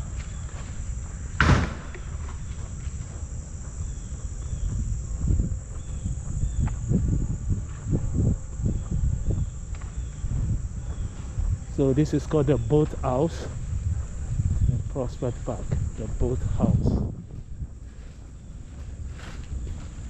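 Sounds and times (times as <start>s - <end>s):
footsteps: 0.0s - 20.0s
high-pitched insect drone: 0.0s - 20.0s
insect chirps: 0.0s - 20.0s
wind on microphone: 0.0s - 20.0s.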